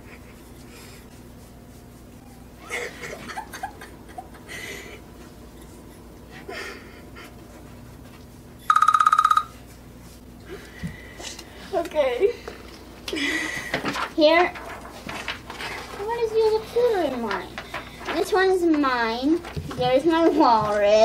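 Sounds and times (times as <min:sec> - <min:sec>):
timer alarm beeping: 0:08.7 - 0:09.6.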